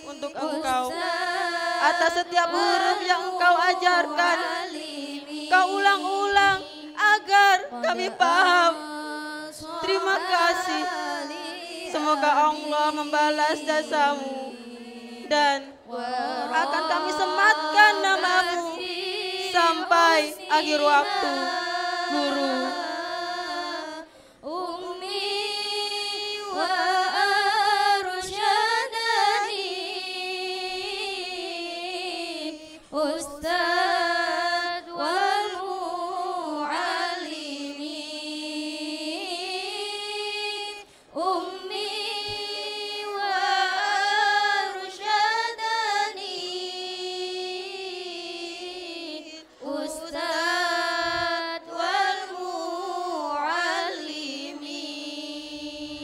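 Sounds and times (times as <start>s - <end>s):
women chanting into microphones: 0.0s - 56.0s.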